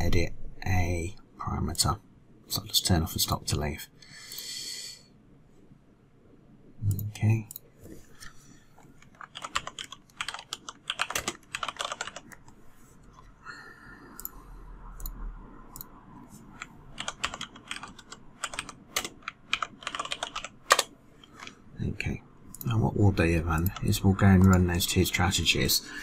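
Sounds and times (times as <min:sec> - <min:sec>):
computer keyboard typing: 0:09.0 - 0:12.5, 0:16.5 - 0:21.6, 0:22.5 - 0:24.8.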